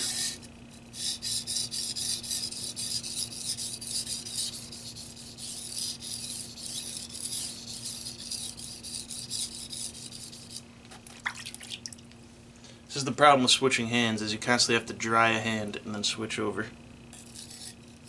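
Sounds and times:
knife rasping on water stone: 0:00.0 - 0:10.6, 0:17.1 - 0:18.0.

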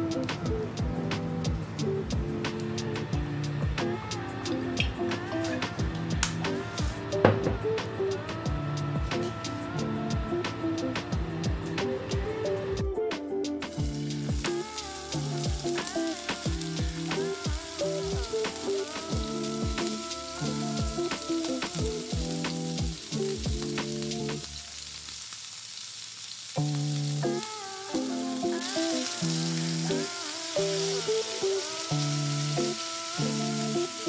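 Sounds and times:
background music with a beat: 0:00.0 - 0:24.5
steak sizzling in a frying pan: 0:13.7 - 0:34.0.

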